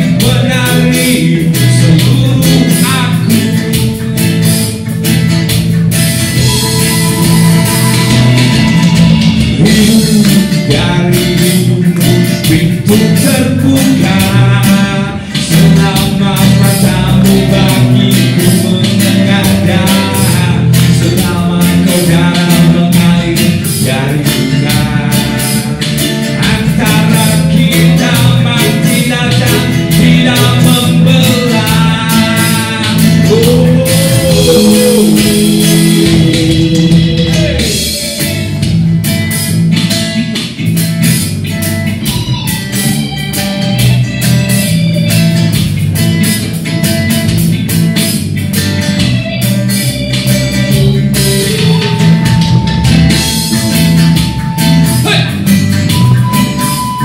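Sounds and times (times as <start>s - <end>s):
man singing: 0.0s - 4.8s, 6.4s - 38.7s, 54.6s - 57.0s
bass line: 0.0s - 57.0s
guitar: 0.0s - 57.0s
live reggae band playing: 0.0s - 57.0s.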